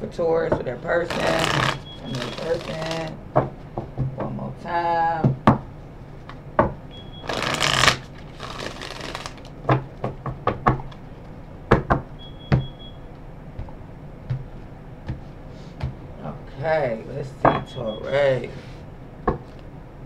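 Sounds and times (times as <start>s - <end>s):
cards riffle shuffling: 1.1s - 3.2s, 7.2s - 9.5s.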